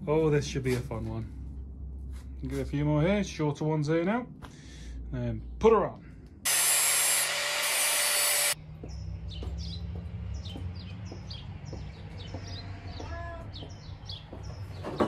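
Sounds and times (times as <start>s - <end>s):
small birds chirping: 8.6s - 15.0s.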